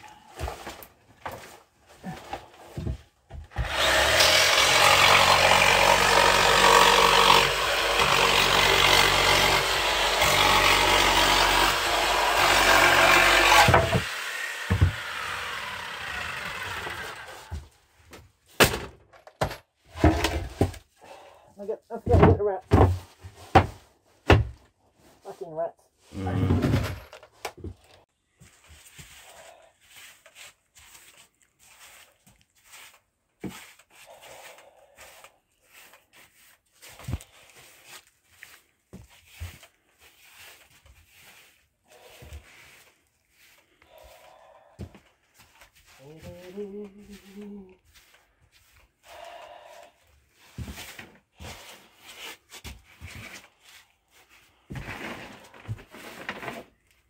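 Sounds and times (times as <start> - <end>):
knocks and thuds on wooden boards: 13.0 - 15.1, 22.0 - 24.7
broom sweeping boards: 28.5 - 44.5, 45.2 - 49.7, 50.3 - 56.6.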